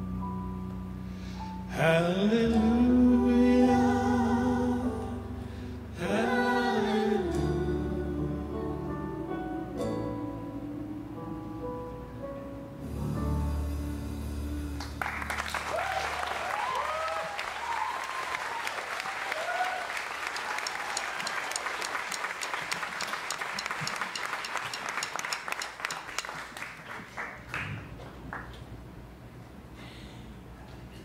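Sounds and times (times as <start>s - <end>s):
audience whooping: 15.0s - 25.3s
audience applauding: 15.0s - 28.6s.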